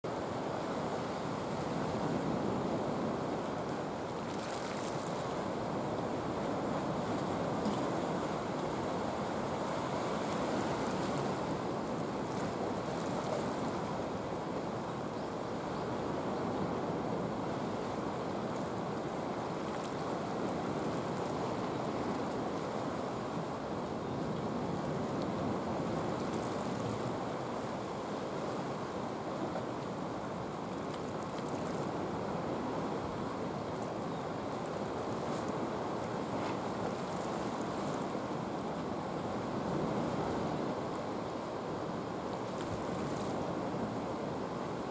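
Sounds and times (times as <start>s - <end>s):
wind: 0.0s - 44.9s
sea water washing: 0.3s - 14.8s
faint light ticks: 30.9s - 31.9s.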